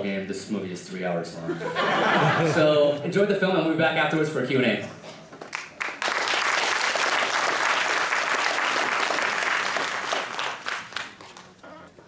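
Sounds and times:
audience applauding: 0:05.4 - 0:11.6.

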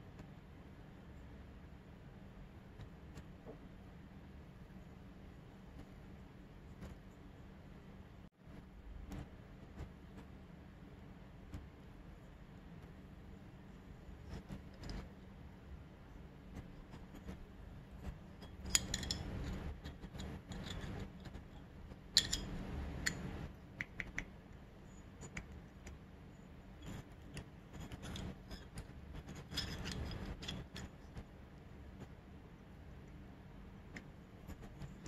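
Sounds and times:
metal parts clicking: 0:18.4 - 0:23.5, 0:26.8 - 0:30.9
light metal scraping: 0:26.8 - 0:31.2.

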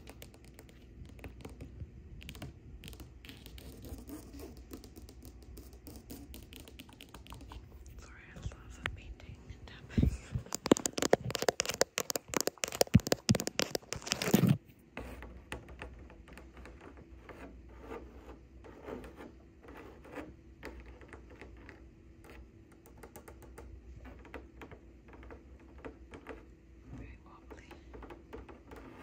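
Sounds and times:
fingernails scratching fabric: 0:00.0 - 0:07.8, 0:10.1 - 0:23.1, 0:27.6 - 0:29.0
nails tapping and scratching wall: 0:00.0 - 0:07.9, 0:10.0 - 0:29.0
faint steady hum: 0:00.0 - 0:29.0.

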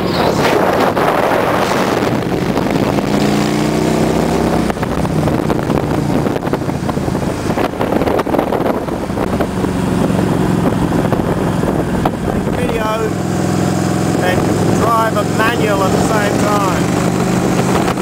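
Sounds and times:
motorcycle engine running: 0:00.0 - 0:18.0
wind on the microphone: 0:00.0 - 0:18.0.

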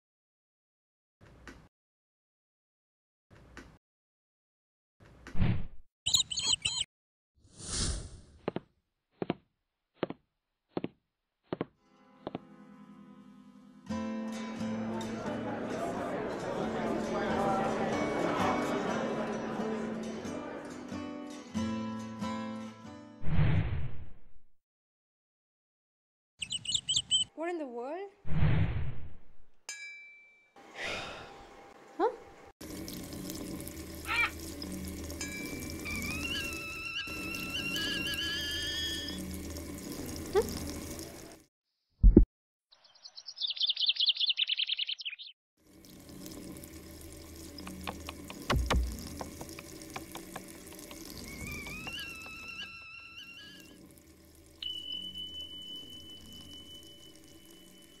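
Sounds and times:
high bird chirps: 0:06.1 - 0:06.9, 0:26.4 - 0:27.3, 0:35.9 - 0:39.2, 0:42.7 - 0:45.4, 0:51.1 - 0:53.8, 0:54.6 - 0:57.8
tap water running into sink: 0:32.6 - 0:41.4, 0:45.6 - 0:54.6
whistle-like tones: 0:35.8 - 0:39.2, 0:51.1 - 0:53.8, 0:54.6 - 0:58.0
thin steady tone: 0:53.8 - 0:58.0.

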